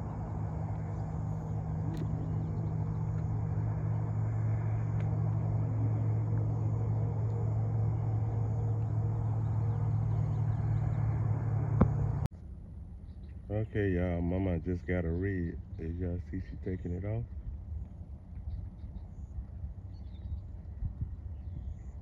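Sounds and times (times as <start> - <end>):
rumbling hiss: 0.0 - 12.3
steady low hum: 0.0 - 22.0.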